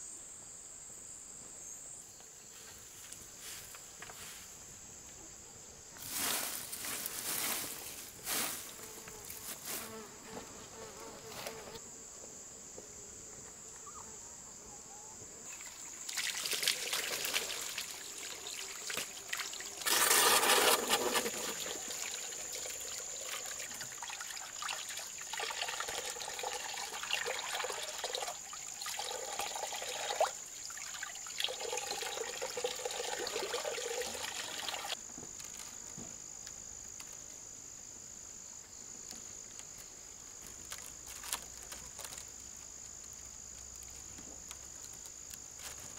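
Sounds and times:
insects droning: 0:00.0 - 0:45.9
tap water running into basin: 0:15.5 - 0:35.0.

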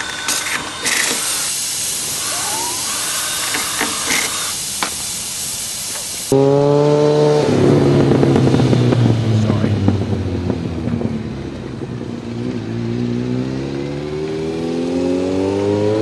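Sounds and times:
air hissing from tire: 0:00.0 - 0:06.4
motorcycle engine running: 0:06.5 - 0:13.3.

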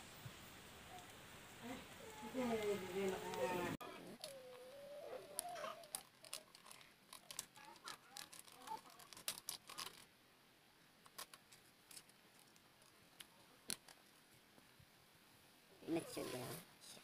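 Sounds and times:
packet crinkling and clicking: 0:04.2 - 0:10.1, 0:11.0 - 0:14.1.

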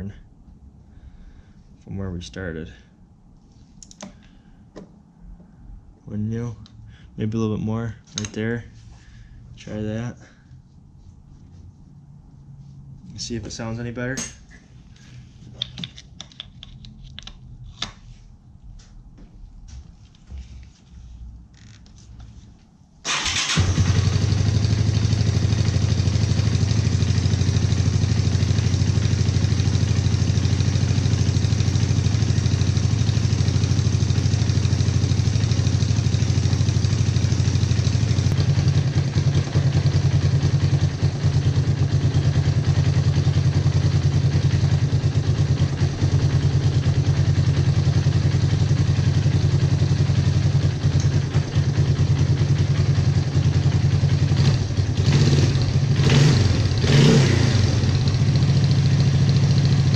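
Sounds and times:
engine starting and idling: 0:23.0 - 0:25.6.

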